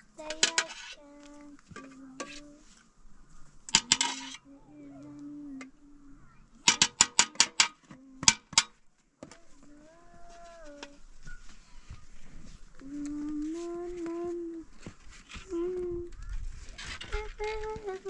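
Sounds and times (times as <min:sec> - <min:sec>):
spoon clinking against tin can: 0:00.3 - 0:00.9, 0:03.7 - 0:04.4.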